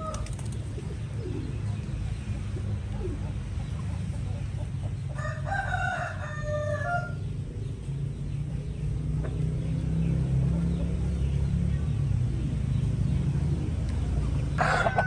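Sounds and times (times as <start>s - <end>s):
rooster crowing: 5.2s - 7.3s, 14.6s - 15.0s.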